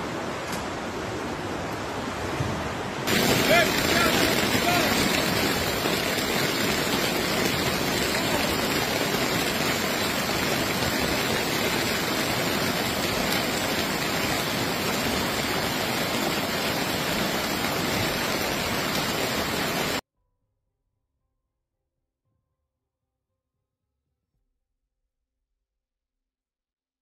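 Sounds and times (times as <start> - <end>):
flooded river rushing: 0.0 - 20.0
heavy rain: 0.0 - 20.0.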